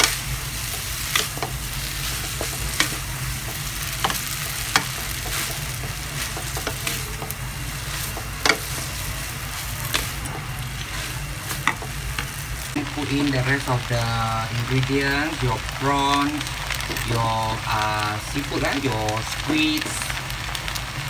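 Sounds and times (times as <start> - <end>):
low steady hum: 0.0 - 21.0
noodles sizzling in a wok: 0.0 - 21.0.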